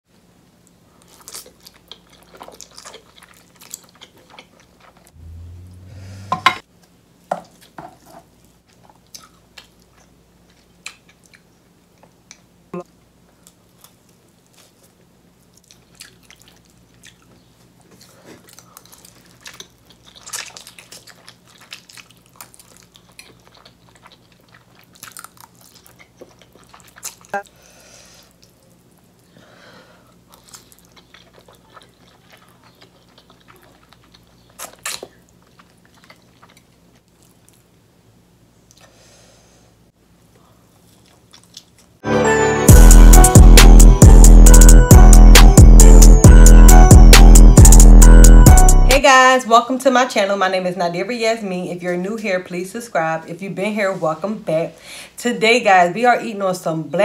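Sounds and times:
chewing and wet mouth sounds: 0:00.7 - 0:05.3, 0:08.4 - 0:12.6, 0:13.2 - 0:27.6, 0:28.2 - 0:29.4, 0:30.0 - 0:38.0, 0:38.6 - 0:39.0, 0:40.1 - 0:42.0
low hum: 0:05.1 - 0:06.6, 0:42.2 - 0:49.0.

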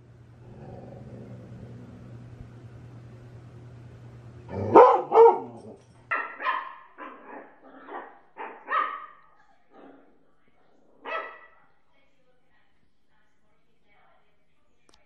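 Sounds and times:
large dog barking: 0:04.5 - 0:09.2, 0:11.0 - 0:11.5
puppy yapping high-pitched: 0:04.7 - 0:09.2.

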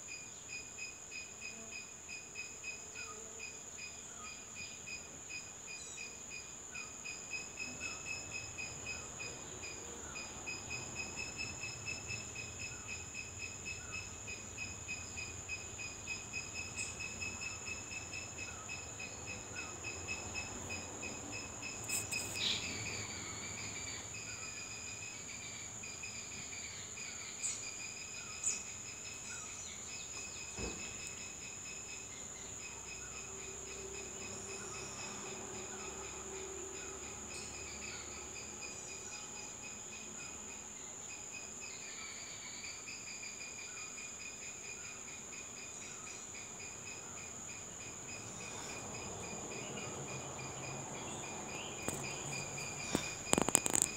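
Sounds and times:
high-pitched insect trill: 0:00.0 - 0:53.9
lower pulsing insect trill: 0:00.0 - 0:53.9.

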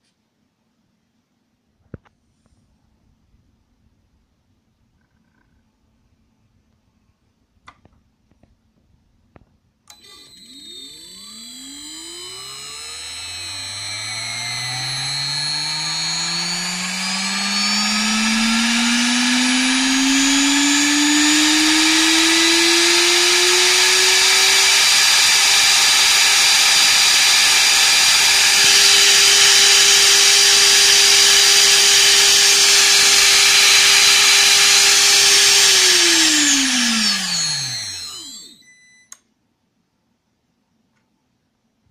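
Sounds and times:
spindle motor whining: 0:09.9 - 0:38.6.

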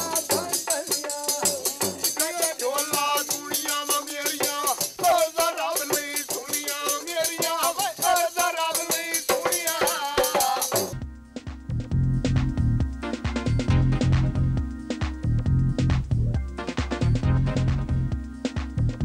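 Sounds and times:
man singing: 0:00.0 - 0:10.9
barrel drum beat: 0:00.0 - 0:19.0.

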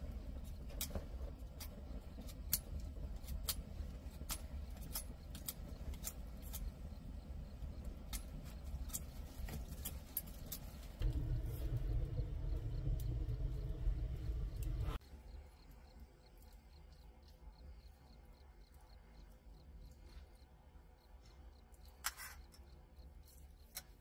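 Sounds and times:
sharp irregular crackles: 0:00.0 - 0:15.0
steady low rumble: 0:10.9 - 0:15.4.

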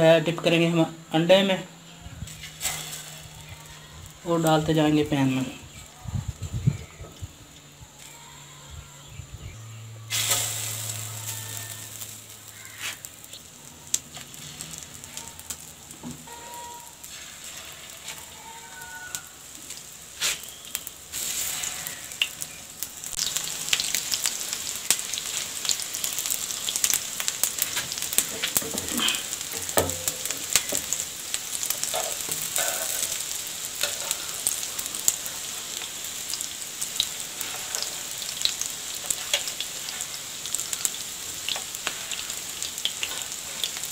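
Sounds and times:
chicken sizzling in hot oil: 0:10.0 - 0:43.9.

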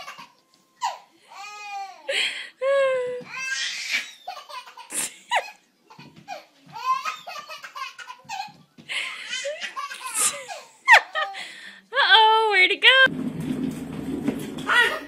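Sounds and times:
baby laughing: 0:00.0 - 0:01.0, 0:03.7 - 0:08.6, 0:09.2 - 0:11.4
baby squealing: 0:03.4 - 0:04.6.

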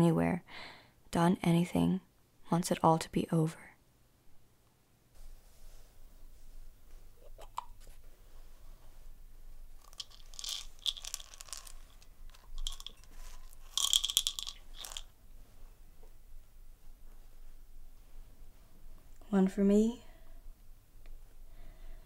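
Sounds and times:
pill bottle cap clicking: 0:09.8 - 0:15.1
tablets rattling: 0:09.8 - 0:15.1.

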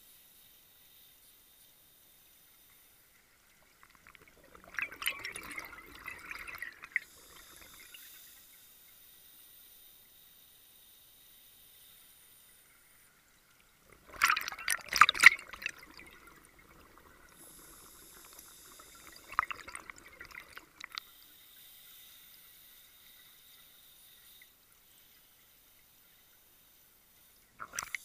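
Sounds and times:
faint hiss: 0:00.0 - 0:14.2, 0:14.9 - 0:28.0
underwater bubbling: 0:03.5 - 0:08.4, 0:13.6 - 0:21.3, 0:27.5 - 0:28.0.

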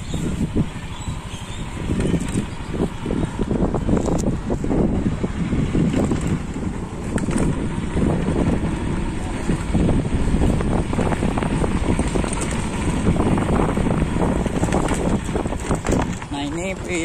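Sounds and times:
motorbike engine running: 0:00.0 - 0:17.0
wind buffeting microphone: 0:00.0 - 0:17.0.

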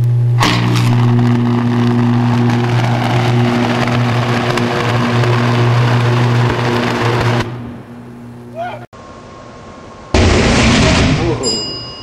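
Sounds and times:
electric arc crackling buzz: 0:00.0 - 0:08.5
deep steady hum: 0:00.0 - 0:10.5.

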